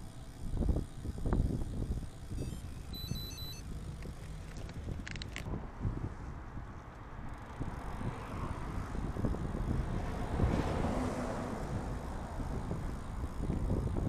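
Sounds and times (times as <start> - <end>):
road rumble: 0.0 - 14.0
wind on microphone: 0.4 - 14.0
car passing: 5.6 - 13.4.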